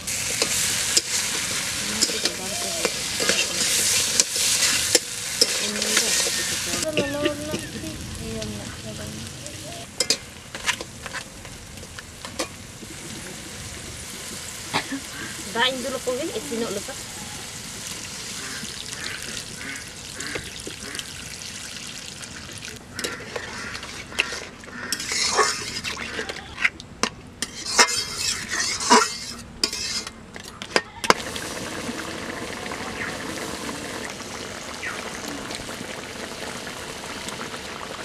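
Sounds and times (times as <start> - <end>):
loud sizzle bursts: 0.0 - 23.0, 31.1 - 38.0
crab sizzling in a wok: 0.0 - 26.2, 27.4 - 30.2, 31.0 - 38.0
metal spatula scraping a wok: 0.1 - 7.6, 10.0 - 11.3, 23.0 - 26.7, 27.4 - 31.2
curry gravy bubbling: 31.1 - 38.0.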